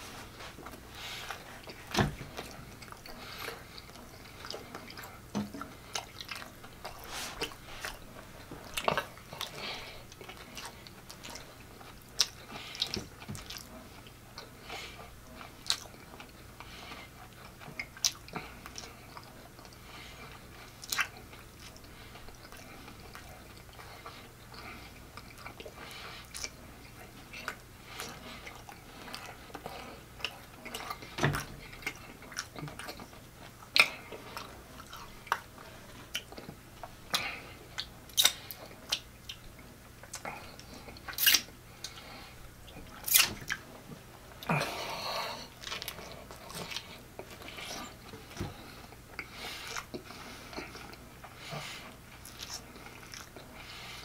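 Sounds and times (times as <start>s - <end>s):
person chewing food: 0.0s - 54.0s
wet mouth smacks and clicks: 38.1s - 39.4s, 43.1s - 43.6s.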